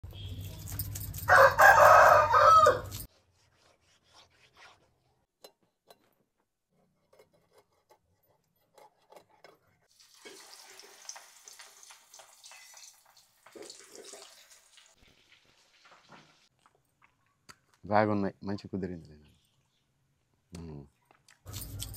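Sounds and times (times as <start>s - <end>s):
rooster crowing: 1.3s - 3.1s.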